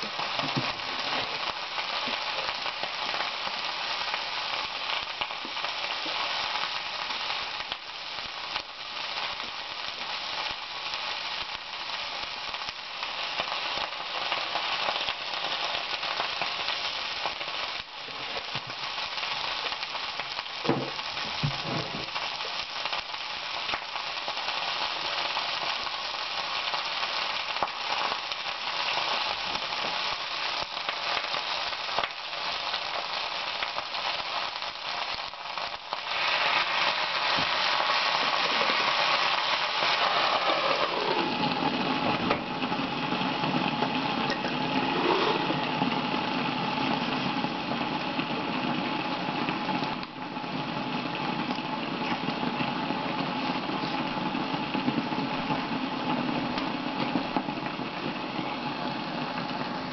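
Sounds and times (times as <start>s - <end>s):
vegetables sizzling in a frying pan: 0.0s - 59.9s.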